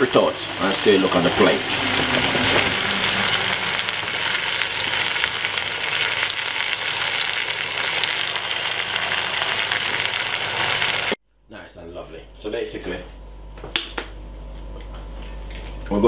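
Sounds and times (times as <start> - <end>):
steaks sizzling in hot fat: 0.0 - 11.2.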